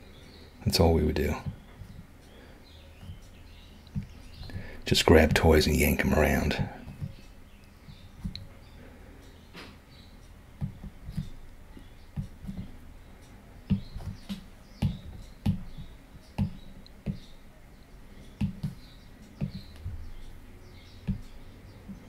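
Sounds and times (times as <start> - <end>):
stylus tapping on glass screen: 10.6 - 11.4, 13.7 - 17.4, 18.3 - 20.0, 21.1 - 21.4.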